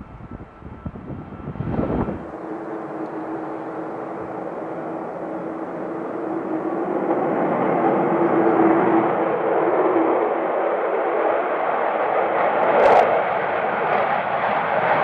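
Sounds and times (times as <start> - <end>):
jet engines rumbling: 0.0 - 15.0
jet taking off with howling tone: 0.0 - 15.0.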